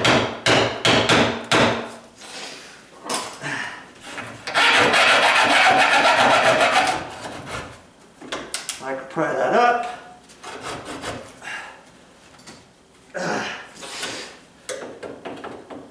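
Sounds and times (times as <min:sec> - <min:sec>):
hacksaw sawing through nails: 0:04.5 - 0:07.6.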